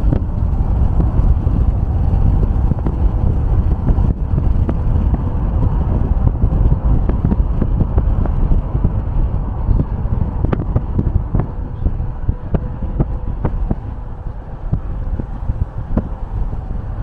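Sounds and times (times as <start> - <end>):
road and wind noise: 0.0 - 17.0.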